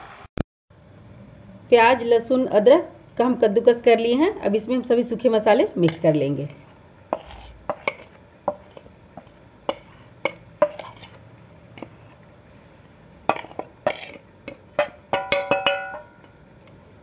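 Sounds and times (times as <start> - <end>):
spoon clinking on metal plate: 13.3 - 16.4.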